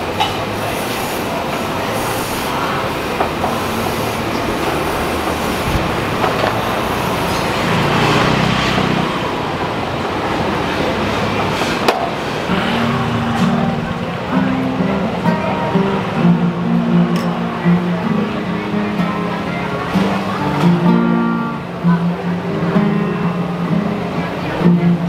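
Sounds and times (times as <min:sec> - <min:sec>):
steam hissing from pot: 0:00.0 - 0:08.0.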